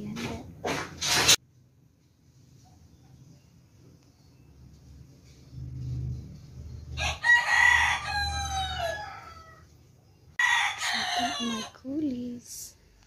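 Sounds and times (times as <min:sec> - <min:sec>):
rooster crowing: 0:06.9 - 0:09.7, 0:10.4 - 0:11.8.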